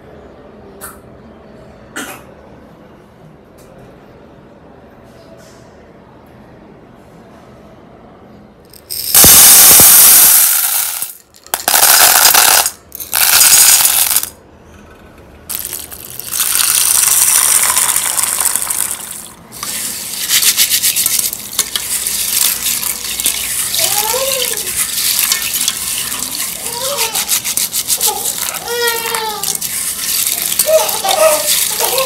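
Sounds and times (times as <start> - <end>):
pouring into a metal bowl: 8.7 - 14.3, 15.5 - 32.0.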